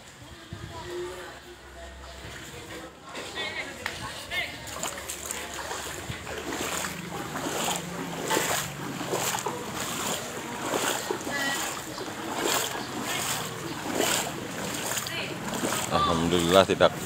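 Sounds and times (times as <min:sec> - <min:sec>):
feet wading through water: 0:01.2 - 0:17.0.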